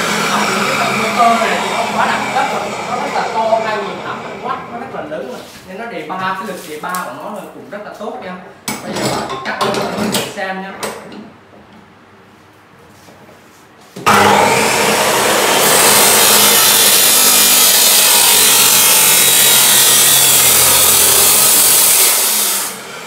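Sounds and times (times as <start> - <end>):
chop saw cutting steel: 0.0 - 5.1, 14.0 - 23.0.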